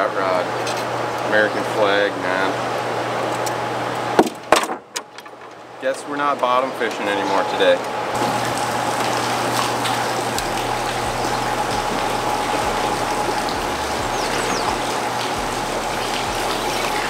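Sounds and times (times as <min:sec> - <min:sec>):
faint steady whine: 0:05.4 - 0:17.0
water rushing through spillway: 0:08.2 - 0:17.0.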